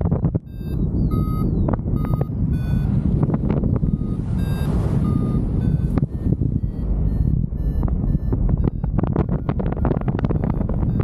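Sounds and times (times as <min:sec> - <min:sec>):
wind buffeting microphone: 0:00.0 - 0:11.0
short electronic beeps: 0:00.2 - 0:11.0.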